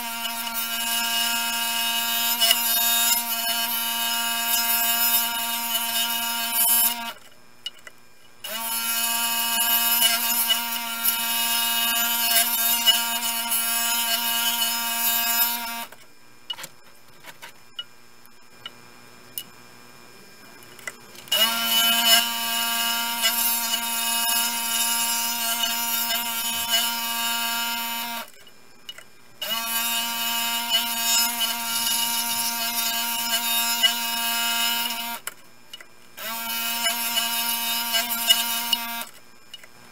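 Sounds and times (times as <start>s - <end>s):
scroll saw cutting wood: 0.0s - 7.3s, 8.4s - 16.0s, 21.3s - 28.4s, 29.4s - 35.4s, 36.2s - 39.2s.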